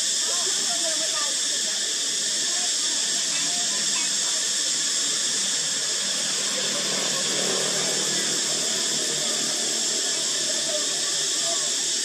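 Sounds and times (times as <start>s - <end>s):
cicadas buzzing: 0.0s - 12.0s.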